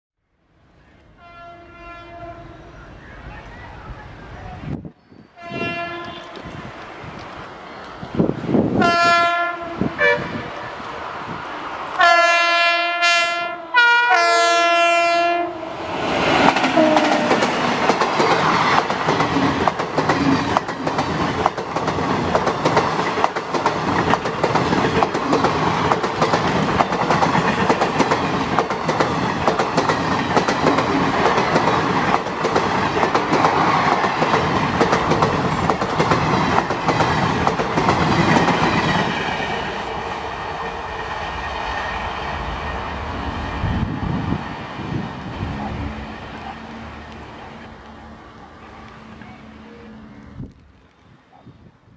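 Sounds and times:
locomotive horn blasts: 1.2 - 2.7, 5.4 - 6.6, 8.8 - 10.6, 12.0 - 15.7, 16.8 - 17.4
train wheels on rails: 2.7 - 12.4, 15.6 - 51.3.

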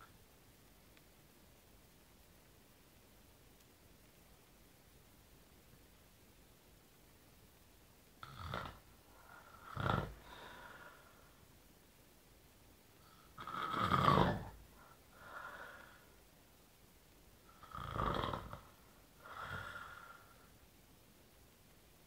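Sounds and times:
man snoring: 8.2 - 8.8, 9.4 - 10.2, 13.4 - 14.6, 17.6 - 18.6.

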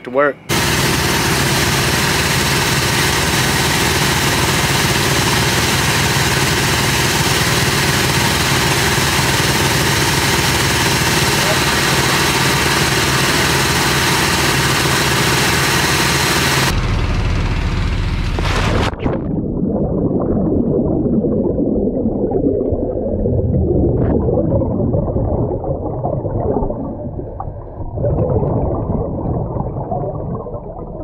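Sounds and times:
air compressor engine running: 0.5 - 18.9
muffled underwater rumbling: 16.7 - 31.0
gurgling bubbles: 18.9 - 31.0.

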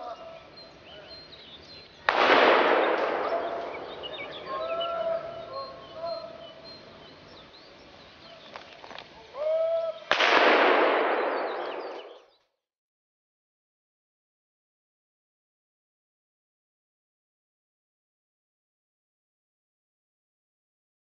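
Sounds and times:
rifle shots with echo: 2.1 - 5.1, 10.1 - 12.2.

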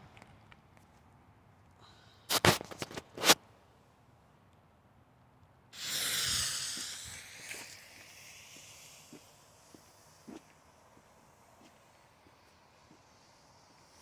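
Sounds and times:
firework hissing and spraying sparks: 5.8 - 14.0.

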